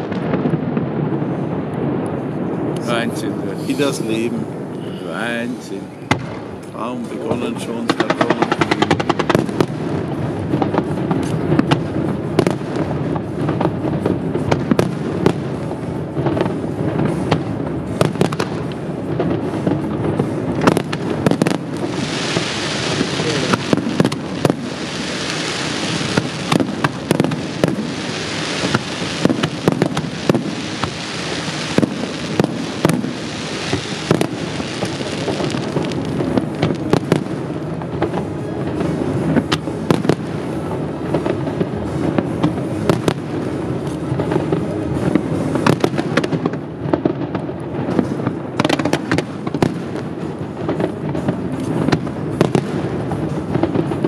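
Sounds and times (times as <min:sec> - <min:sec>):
hiss of bursting stars: 0:02.8 - 0:06.0, 0:11.0 - 0:46.4
firework shells bursting: 0:06.1 - 0:09.7.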